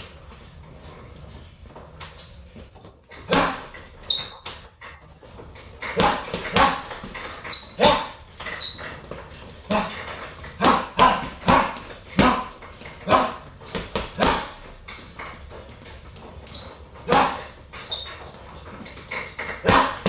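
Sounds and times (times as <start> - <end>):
gloved punches on heavy bag: 3.3 - 3.7, 5.9 - 7.2, 9.7 - 14.7, 17.1 - 17.5, 19.4 - 20.0.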